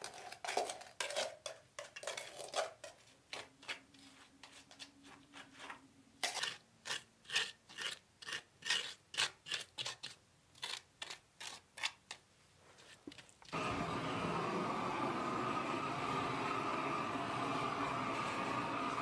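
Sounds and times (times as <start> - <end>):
trowel scraping wet sand paste: 3.3 - 12.2.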